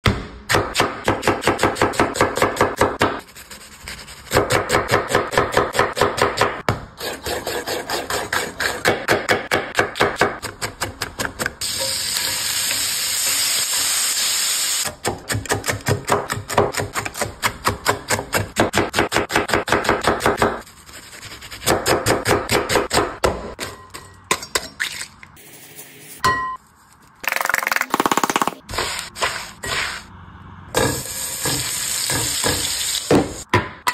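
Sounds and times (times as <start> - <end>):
rapid rhythmic kitchen clicks: 7.2 - 11.6, 14.8 - 20.6, 21.2 - 23.3
bacon sizzling in a frying pan: 11.6 - 14.8.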